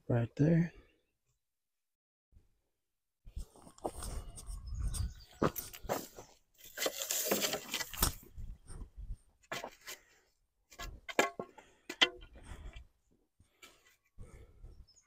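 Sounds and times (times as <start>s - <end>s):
wooden stakes clacking: 5.8s - 8.2s, 10.7s - 12.8s.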